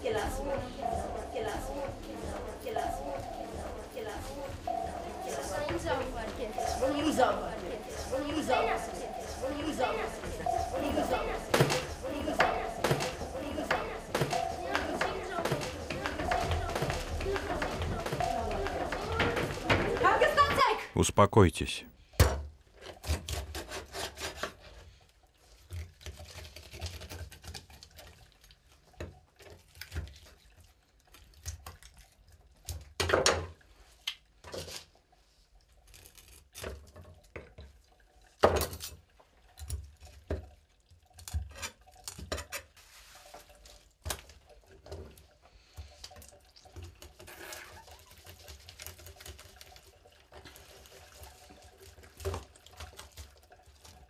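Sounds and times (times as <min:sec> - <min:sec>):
knife cutting and scraping fish: 0:22.8 - 0:28.6, 0:35.8 - 0:37.3, 0:41.1 - 0:43.6.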